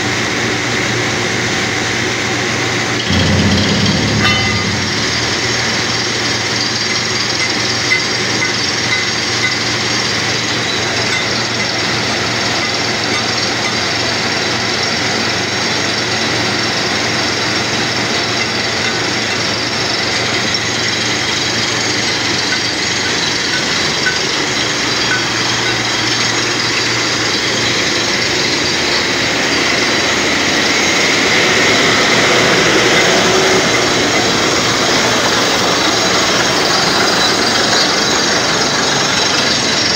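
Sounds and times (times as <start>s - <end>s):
drilling rig running with hiss: 0.0s - 39.9s
low hum: 3.1s - 6.6s.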